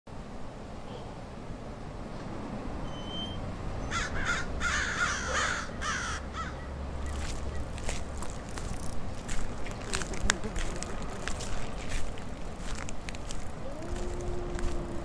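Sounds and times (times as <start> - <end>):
crows cawing: 3.9 - 6.6.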